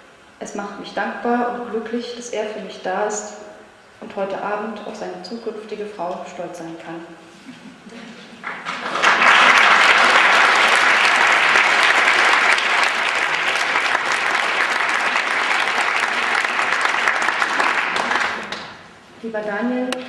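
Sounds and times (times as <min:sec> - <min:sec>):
audience applauding: 0:08.4 - 0:18.8.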